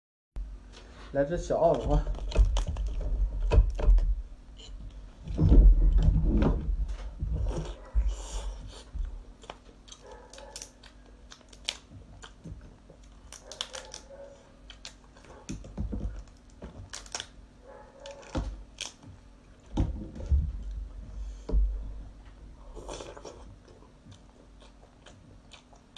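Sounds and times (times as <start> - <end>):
dull low thumps: 5.2 - 8.1, 19.8 - 22.2
lobster shell cracking: 9.5 - 12.4, 13.0 - 17.4, 18.0 - 19.1.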